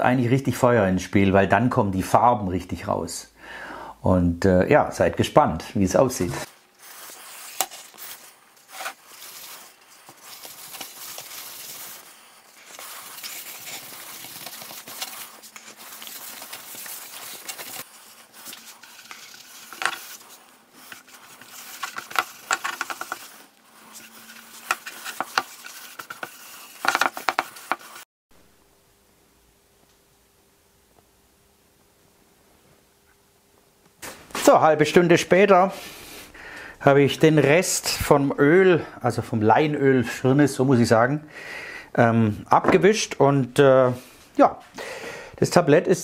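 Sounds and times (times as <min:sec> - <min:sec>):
cloth rubbing hiss: 0:06.0 - 0:28.1, 0:34.0 - 0:38.2.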